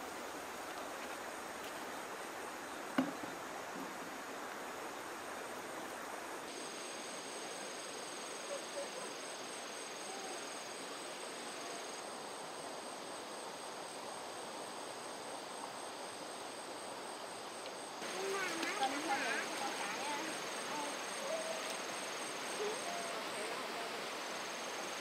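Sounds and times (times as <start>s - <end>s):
constant even hiss: 0.0s - 25.0s
insects trilling: 6.0s - 25.0s.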